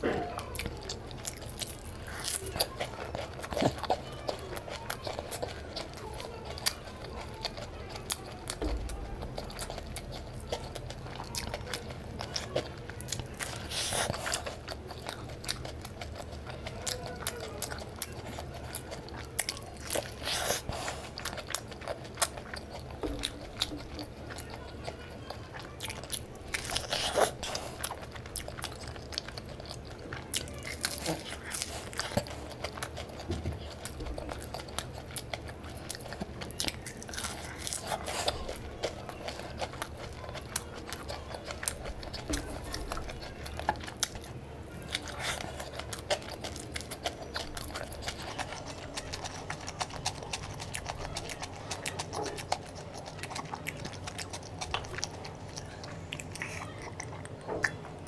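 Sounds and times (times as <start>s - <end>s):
crunching: 0.0s - 58.0s
person biting and chewing: 0.0s - 58.0s.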